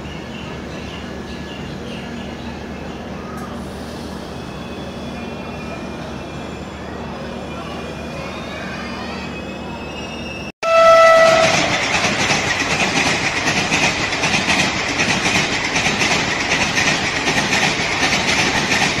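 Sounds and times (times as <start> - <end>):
train rail noise: 0.0 - 19.0
train horn: 10.6 - 11.9.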